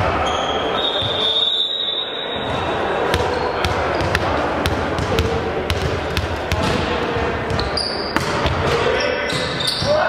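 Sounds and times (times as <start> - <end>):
echoing hall chatter: 0.0 - 10.0
ball bouncing on wooden floor: 2.5 - 9.4.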